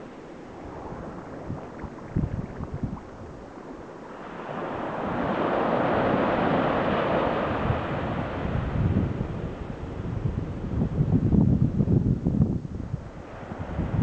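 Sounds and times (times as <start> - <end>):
small waves washing on sand: 0.0 - 10.6
wave breaking at shoreline: 0.0 - 10.6
wind knocking on microphone: 0.9 - 3.3.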